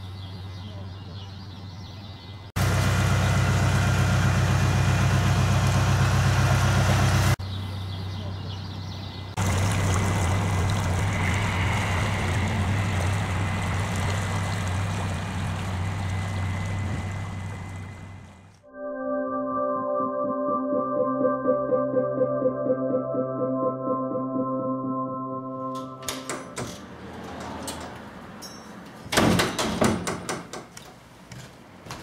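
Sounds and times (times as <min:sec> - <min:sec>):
boat diesel engine running: 0:02.6 - 0:07.4, 0:09.4 - 0:18.6.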